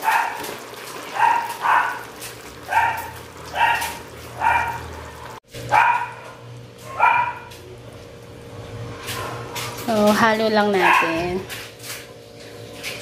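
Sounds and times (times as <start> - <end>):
dog barking: 0.0 - 0.4, 1.1 - 2.1, 2.7 - 7.6, 9.1 - 9.6, 10.8 - 11.4.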